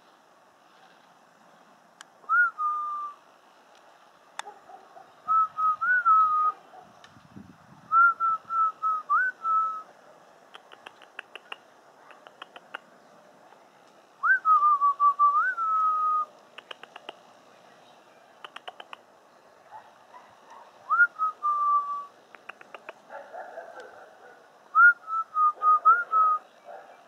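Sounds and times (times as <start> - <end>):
whistled notes: 14.2 - 16.3, 20.9 - 22.1
faint quick ticks: 16.4 - 17.2, 18.4 - 19.0.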